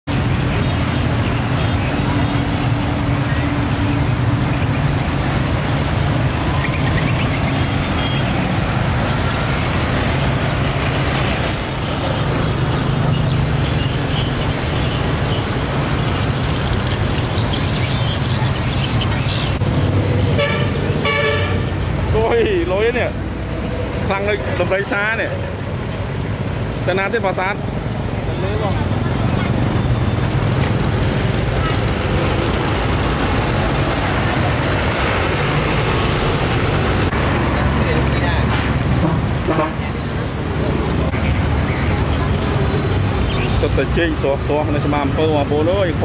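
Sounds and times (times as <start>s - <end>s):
vehicle engines running: 0.0s - 46.0s
car horn: 20.3s - 21.8s.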